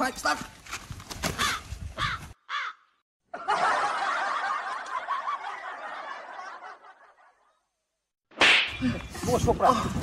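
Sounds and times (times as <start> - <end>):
people laughing: 3.3 - 7.6.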